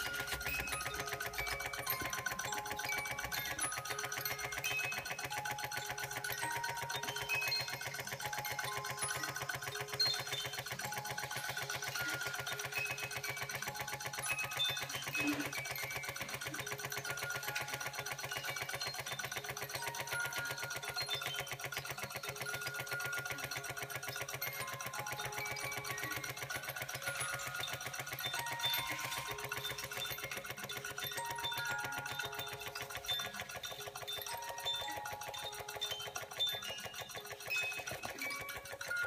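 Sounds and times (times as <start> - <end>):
music box tune of high notes: 0.0 - 39.0
toy steam engine clattering: 0.0 - 39.0.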